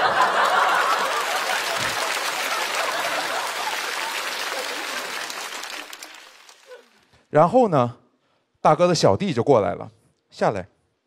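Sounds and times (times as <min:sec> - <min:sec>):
audience laughing: 0:00.0 - 0:07.0
audience applauding: 0:00.0 - 0:07.1.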